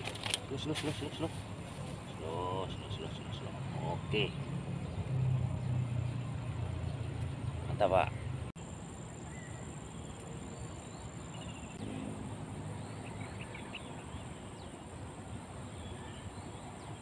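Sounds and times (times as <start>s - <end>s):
bird chirps: 2.1s - 11.9s, 12.7s - 15.0s.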